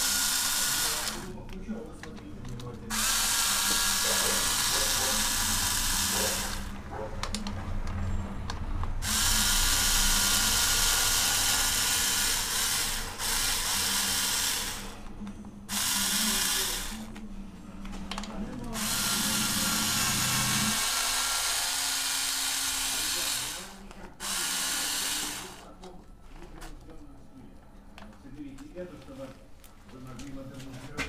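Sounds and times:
cordless screwdriver motor spinning: 0.0 - 1.3, 2.9 - 6.7, 9.0 - 15.0, 15.7 - 17.1, 18.8 - 25.7.

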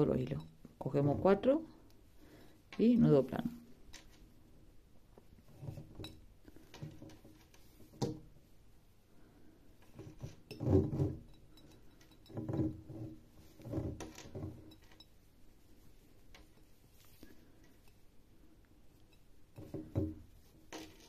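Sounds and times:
cord rustling: 0.9 - 4.4, 9.7 - 21.0.

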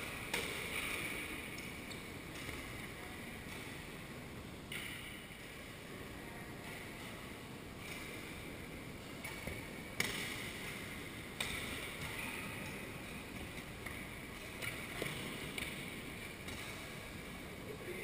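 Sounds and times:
racket striking shuttlecock: 9.2 - 10.7.

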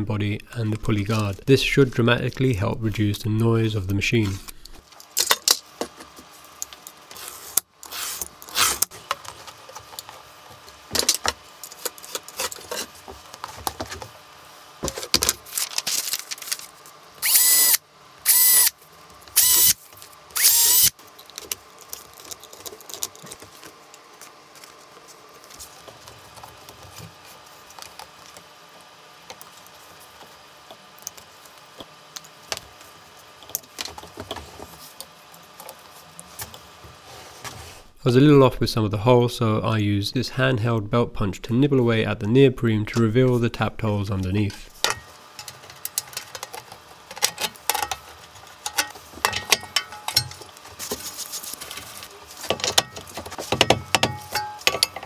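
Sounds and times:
cordless drill whining: 17.2 - 18.7, 19.4 - 19.8, 20.4 - 20.9.

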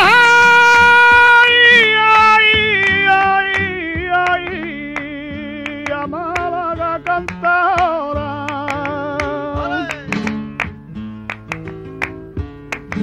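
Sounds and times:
man singing flamenco: 0.0 - 11.5, 12.4 - 13.0
flamenco guitar: 0.0 - 13.0.

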